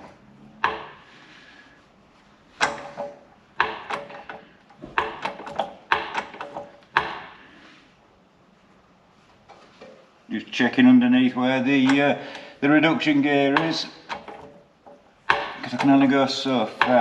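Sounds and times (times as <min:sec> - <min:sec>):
metallic clanks and knocks: 0:00.0 - 0:01.1, 0:02.6 - 0:07.4, 0:13.5 - 0:17.0.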